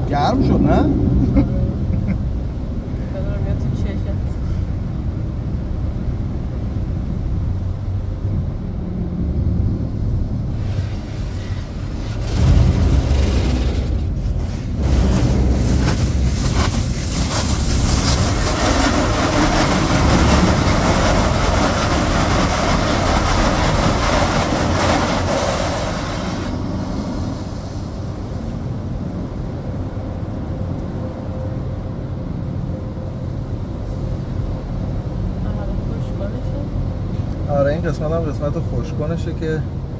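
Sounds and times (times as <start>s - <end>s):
steady low rumble: 0.0s - 39.9s
water jets spraying on car: 10.4s - 28.7s.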